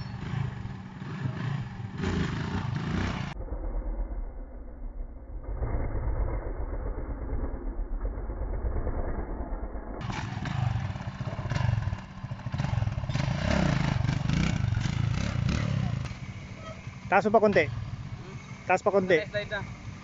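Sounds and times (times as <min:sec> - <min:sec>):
dirt bike engine revving: 0:00.0 - 0:03.4, 0:10.0 - 0:20.0.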